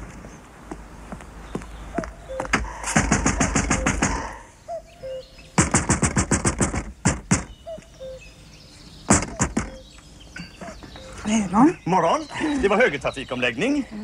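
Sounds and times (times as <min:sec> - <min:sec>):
small birds chirping: 0:00.0 - 0:14.0
rapid knocking on wooden door: 0:05.6 - 0:07.5.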